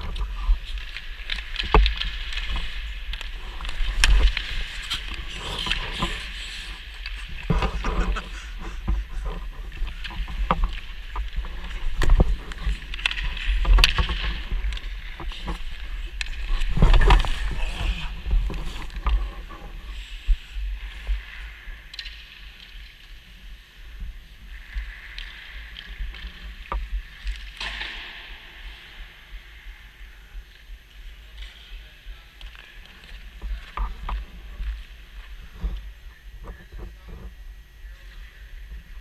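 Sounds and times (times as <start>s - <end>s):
skates scraping on ice: 0.2s - 21.5s.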